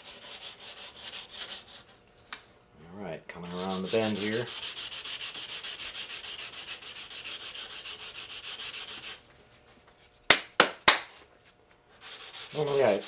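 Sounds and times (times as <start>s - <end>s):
hand sanding plastic: 0.0s - 1.8s, 3.4s - 9.2s, 11.9s - 13.0s.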